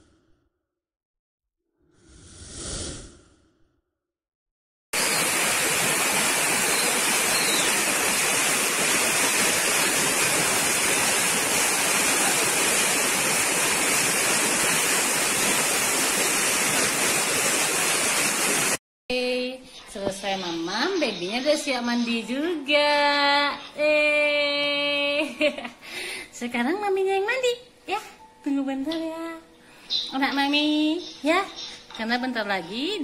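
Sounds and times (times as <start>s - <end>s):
heavy rain on concrete and plants: 5.0s - 18.8s.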